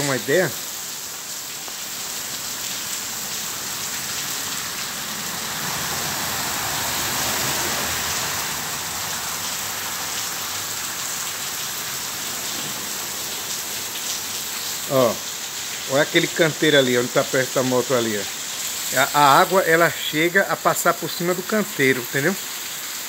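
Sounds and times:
heavy rain on pavement: 0.0 - 23.0
car tyres swishing through water: 1.8 - 20.1.

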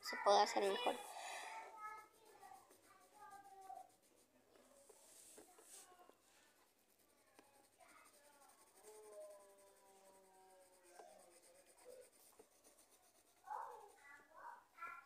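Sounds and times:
pencil scratching on paper: 0.3 - 14.6.

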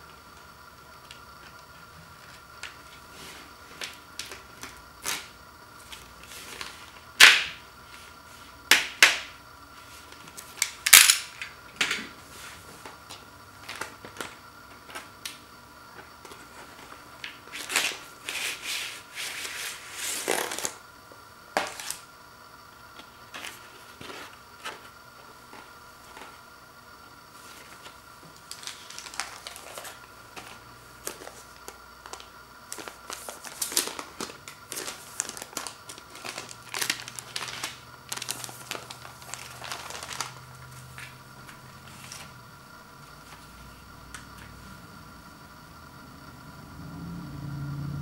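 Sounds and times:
plastic shrink wrap crackling: 27.8 - 42.3.

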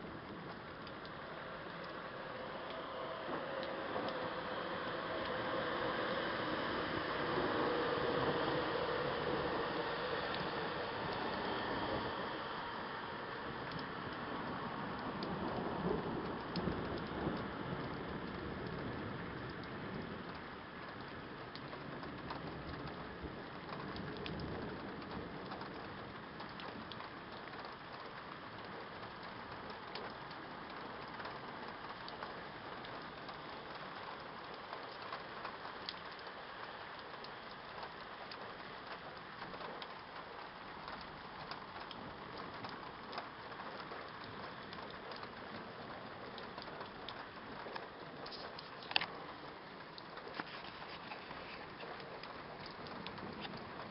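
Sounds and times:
low thunder rumble: 0.0 - 27.4
rain drops ticking: 0.0 - 53.9
steady rain hissing: 0.0 - 53.9.

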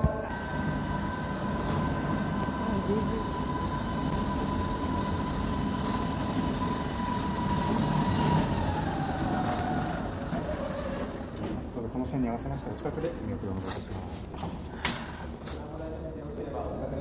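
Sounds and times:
machine whine: 0.0 - 12.0.

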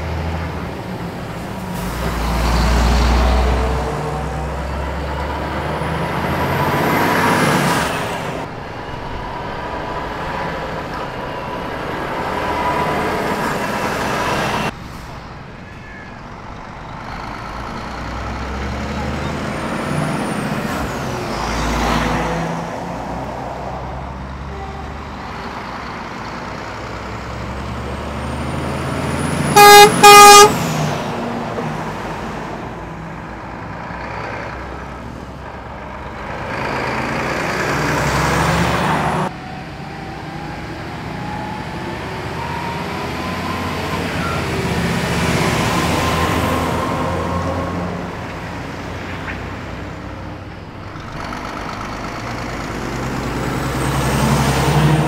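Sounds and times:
heavy trucks driving past: 0.0 - 55.0
truck horn blasts: 24.5 - 25.3, 29.5 - 30.7.

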